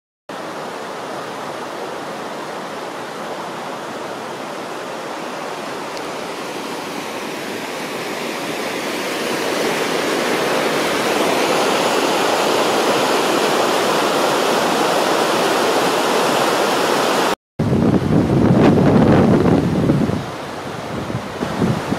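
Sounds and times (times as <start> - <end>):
fast water rushing over riffles: 0.3 - 21.9.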